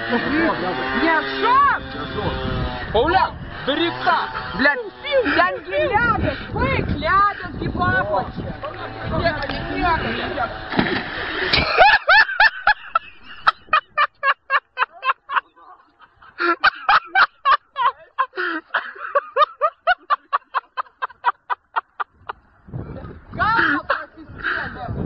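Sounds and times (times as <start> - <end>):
splashing crash: 10.6 - 11.8
man cackling laughter: 11.5 - 22.4.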